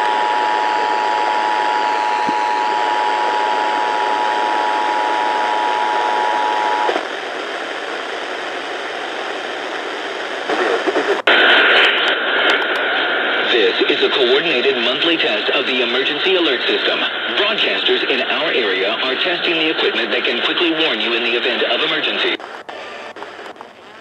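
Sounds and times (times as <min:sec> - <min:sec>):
radio static hiss: 0:00.0 - 0:24.0.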